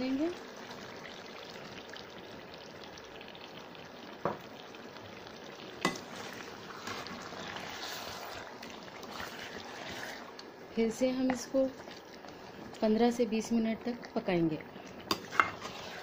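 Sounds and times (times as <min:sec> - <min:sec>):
food sizzling in oil: 0:00.0 - 0:16.0
spatula scraping pan: 0:05.9 - 0:10.3, 0:15.1 - 0:16.0.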